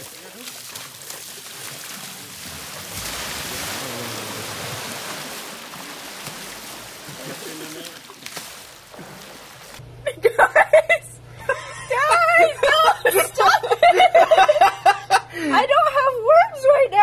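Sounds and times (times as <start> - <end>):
water splashing in a plastic tub: 0.0 - 9.8.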